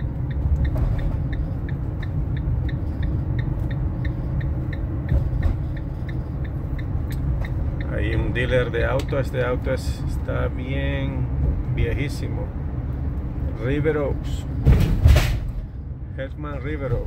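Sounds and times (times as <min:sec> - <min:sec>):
light regular ticking: 0:00.0 - 0:11.2
road and engine rumble: 0:00.0 - 0:17.0.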